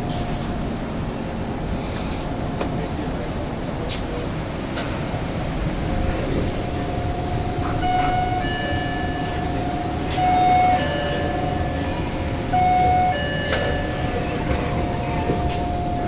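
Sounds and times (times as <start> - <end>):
train carriage hum and rumble: 0.0 - 16.0
electronic chime tones: 7.1 - 14.4.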